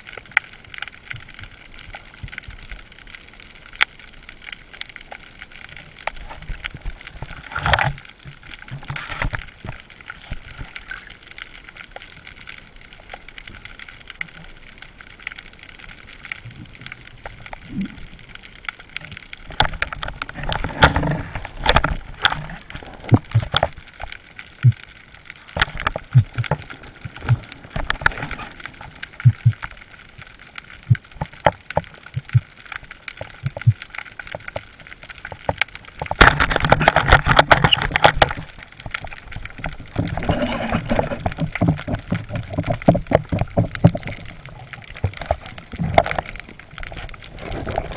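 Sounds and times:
low rush of water underwater: 1.0 - 47.9
sharp clicks and knocks: 19.0 - 24.9, 25.5 - 29.8, 30.9 - 47.2.

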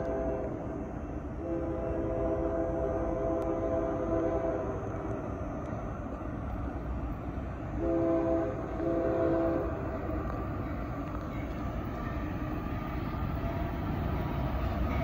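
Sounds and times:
train air horn blasts: 0.0 - 0.5, 1.4 - 4.8, 7.8 - 9.8
low rumble of train: 0.0 - 15.0.

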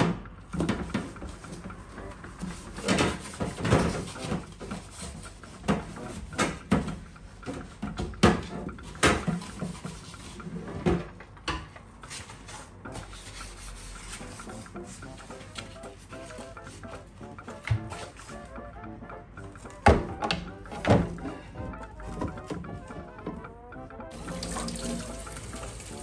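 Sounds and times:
sponge scrubbing plastic: 0.9 - 7.0, 8.9 - 10.8, 12.1 - 16.9, 24.1 - 26.0.

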